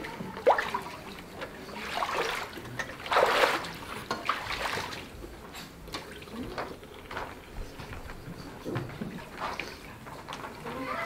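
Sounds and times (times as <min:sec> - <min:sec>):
water splashing and streaming: 0:00.0 - 0:05.2.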